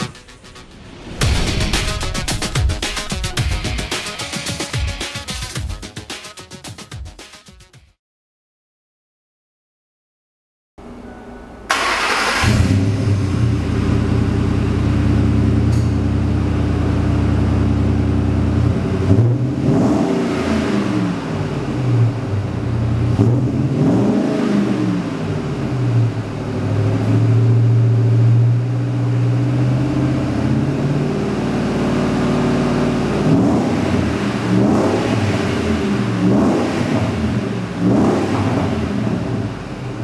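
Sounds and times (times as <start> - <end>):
engine starting: 11.7 - 13.2
engine idling and revving: 11.7 - 40.0.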